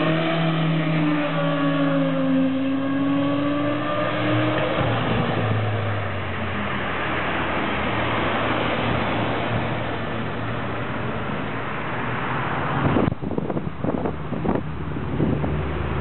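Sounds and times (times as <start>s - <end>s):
wind noise on microphone: 12.4s - 16.0s.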